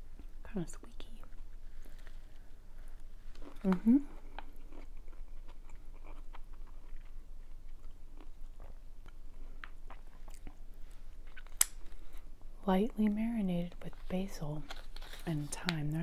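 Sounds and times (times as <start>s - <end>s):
woman talking: 0.4s - 1.3s, 12.6s - 16.0s
person chewing: 1.3s - 12.4s.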